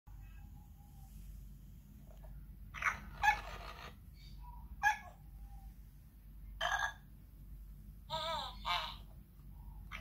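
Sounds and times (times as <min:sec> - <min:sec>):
toy monkey squeaky calls: 0:02.8 - 0:04.0, 0:08.1 - 0:09.1.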